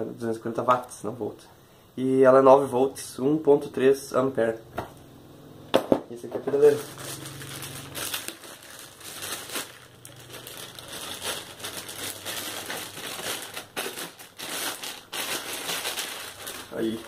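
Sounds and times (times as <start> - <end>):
plastic bag crinkling: 6.5 - 17.0.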